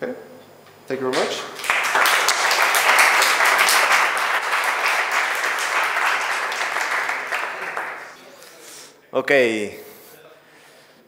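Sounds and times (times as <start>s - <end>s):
audience applauding: 1.2s - 8.2s.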